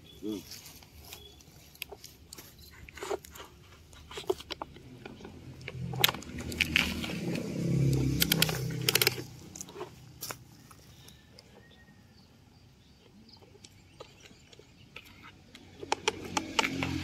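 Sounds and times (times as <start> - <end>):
dirt and pebbles crunching: 0.0 - 11.8
toy bucket scraping dry soil: 0.2 - 11.8, 13.9 - 17.0
low hum with clicks: 4.5 - 9.7.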